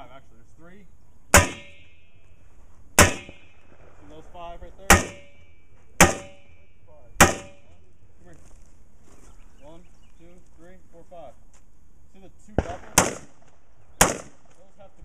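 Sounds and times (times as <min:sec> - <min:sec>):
rifle shots through pipe: 0:01.3 - 0:01.9, 0:03.0 - 0:03.9, 0:04.8 - 0:06.6, 0:07.2 - 0:07.7, 0:12.6 - 0:14.5.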